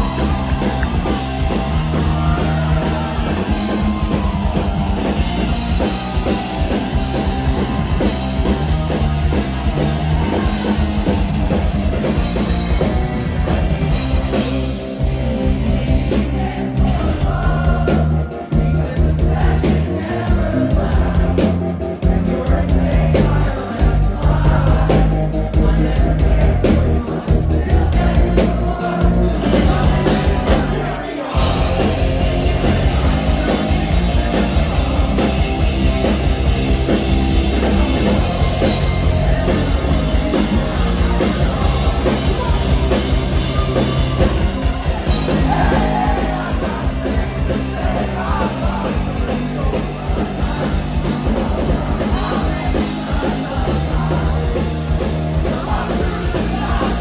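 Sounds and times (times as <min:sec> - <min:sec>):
bass guitar: 0:00.0 - 0:57.0
distorted electric guitars: 0:00.0 - 0:57.0
drums: 0:00.0 - 0:57.0
person singing: 0:15.1 - 0:57.0.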